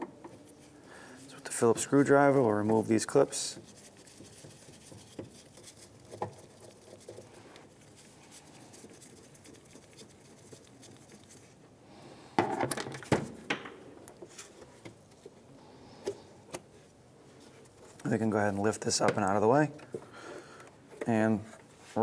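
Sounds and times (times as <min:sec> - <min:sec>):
plastic knocks and clatter: 0:12.4 - 0:13.8.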